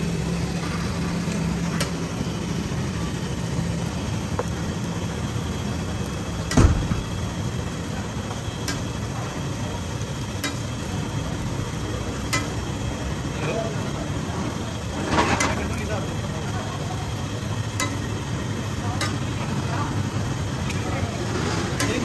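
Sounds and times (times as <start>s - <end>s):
low engine-like hum: 0.0s - 22.0s
metal spatula clicking on griddle: 8.6s - 8.9s, 10.4s - 10.7s, 12.3s - 12.6s, 17.8s - 18.1s, 19.0s - 19.2s.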